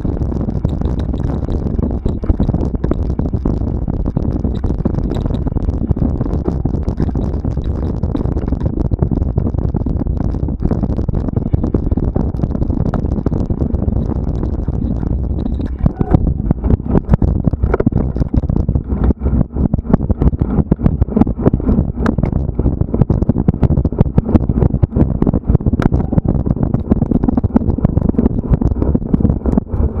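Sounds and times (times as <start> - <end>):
bike knocks and clicks: 0.0 - 9.5
low rumble: 0.0 - 30.0.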